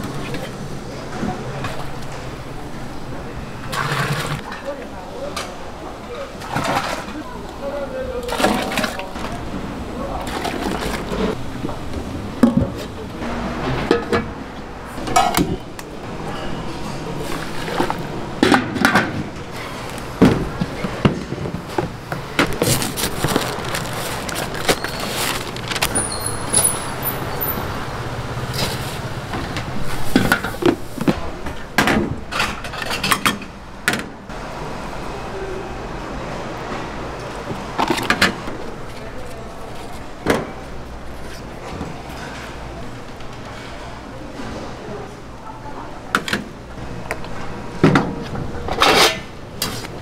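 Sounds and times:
background hum and rush: 0.0s - 50.0s
dishes and utensils clattering: 12.4s - 14.4s, 15.0s - 27.7s, 31.8s - 33.5s.

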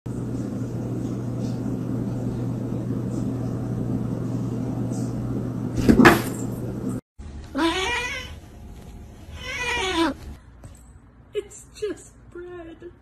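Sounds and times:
low electrical hum: 0.1s - 13.0s.

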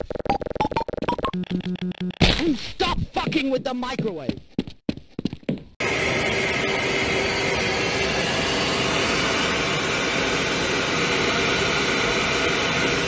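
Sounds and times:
helicopter turbine whine: 5.8s - 13.0s.

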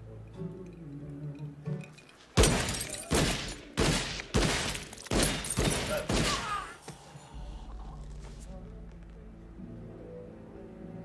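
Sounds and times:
gunshots with ringing tail: 2.4s - 6.7s.

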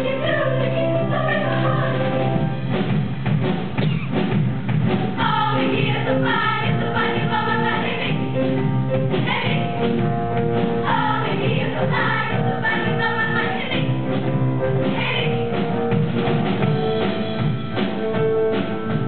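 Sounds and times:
women's choir singing: 0.0s - 2.2s, 5.2s - 8.3s, 9.2s - 9.7s, 10.8s - 14.0s, 14.8s - 15.5s.

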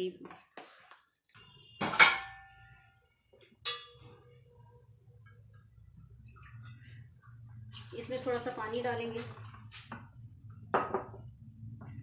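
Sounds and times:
metal pot clanging: 1.8s - 2.7s, 3.6s - 4.2s.

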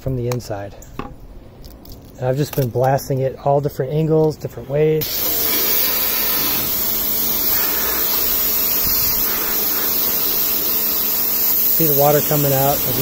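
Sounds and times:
pressure washer water jet hissing: 5.0s - 13.0s.

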